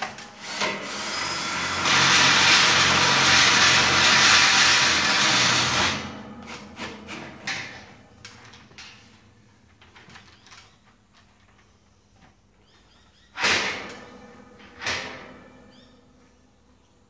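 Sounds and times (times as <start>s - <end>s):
cordless drill driving a screw: 0.4s - 6.0s
loud burst of noise: 0.4s - 6.1s.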